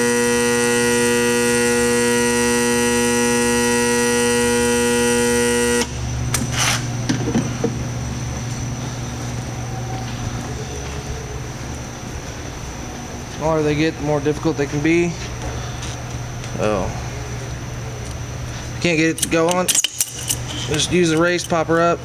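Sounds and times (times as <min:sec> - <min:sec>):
electric heater buzzing: 0:00.0 - 0:22.0
metallic clinks and knocks: 0:19.1 - 0:21.7.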